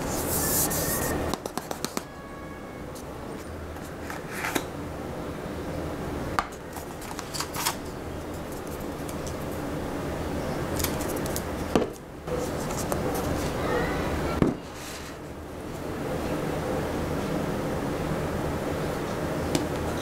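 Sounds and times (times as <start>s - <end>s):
steady low hum: 0.0s - 1.6s, 2.8s - 20.0s.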